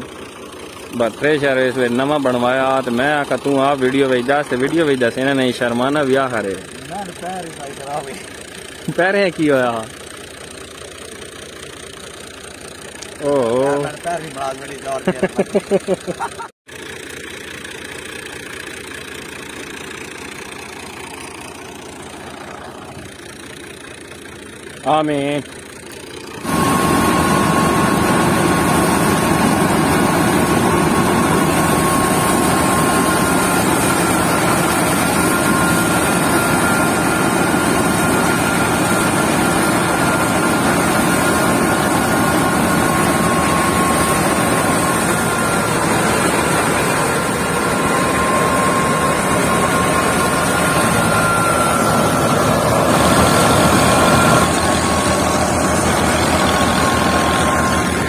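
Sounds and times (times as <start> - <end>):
high whine of spinning machinery: 0.0 - 58.0
threshing machine and tractor din: 0.7 - 10.6, 25.1 - 58.0.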